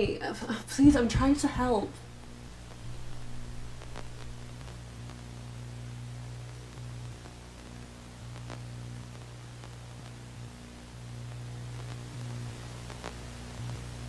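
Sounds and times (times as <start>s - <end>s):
background hiss: 0.0s - 14.0s
low steady hum: 0.0s - 14.0s
faint ticks: 6.5s - 10.2s.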